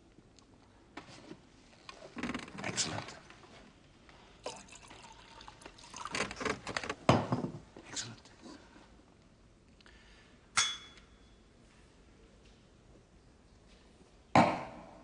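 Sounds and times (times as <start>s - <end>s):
liquid pouring into a vessel: 4.4s - 6.4s
sharp ringing clink: 10.6s - 11.4s.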